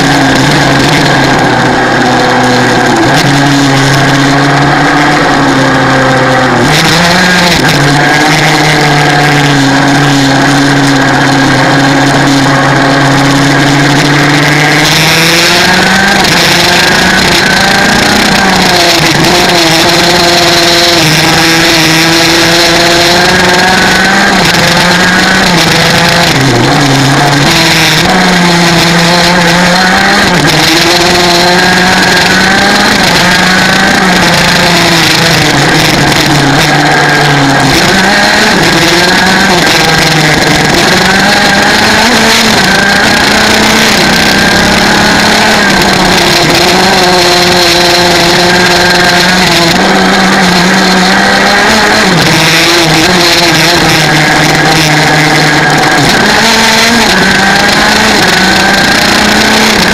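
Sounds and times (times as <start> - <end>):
kart engine at full throttle: 0.0 - 59.9.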